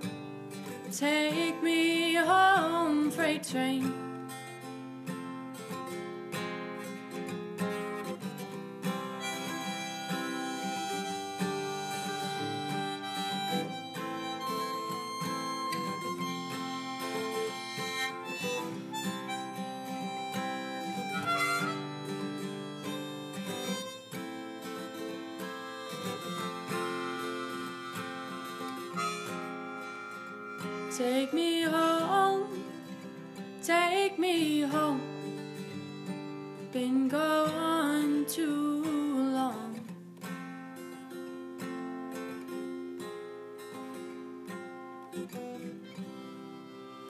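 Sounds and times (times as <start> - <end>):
acoustic guitar: 0.0 - 47.0
harmonica melody: 7.7 - 39.2, 44.5 - 47.0.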